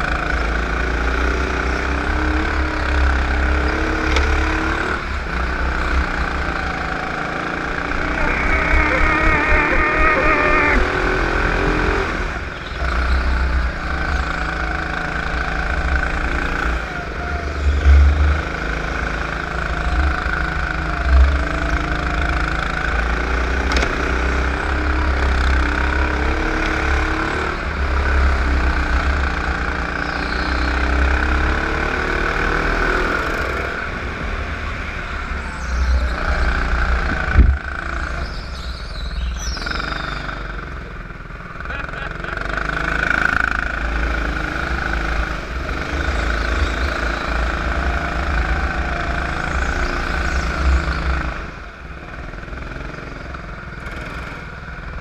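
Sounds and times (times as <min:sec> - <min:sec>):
kart engine revving: 0:00.0 - 0:38.7, 0:39.4 - 0:55.0.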